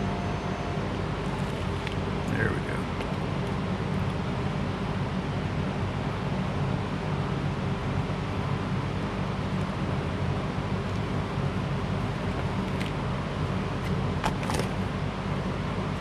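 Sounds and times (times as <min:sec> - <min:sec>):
low hum and hiss: 0:00.0 - 0:16.0.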